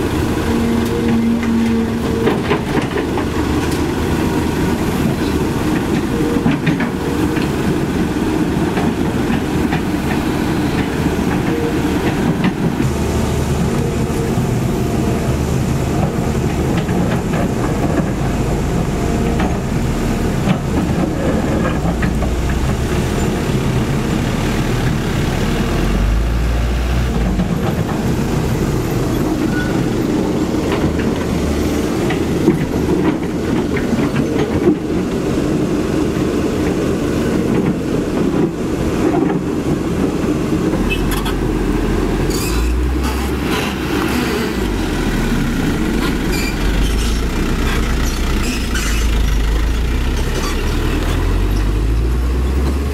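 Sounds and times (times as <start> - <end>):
excavator diesel engine under load: 0.0 - 52.9
heavy low rumble: 7.0 - 34.0.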